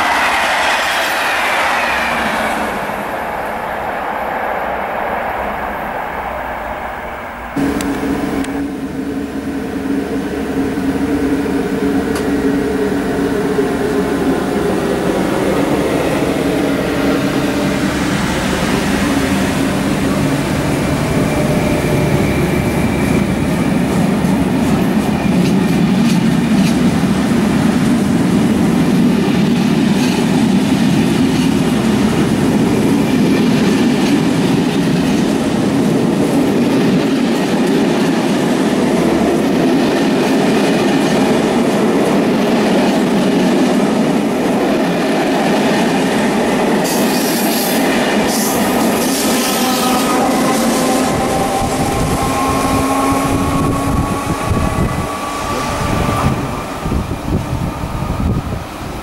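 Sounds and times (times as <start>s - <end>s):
train hum: 0.0s - 59.0s
train wheels clattering on rails: 14.9s - 58.3s.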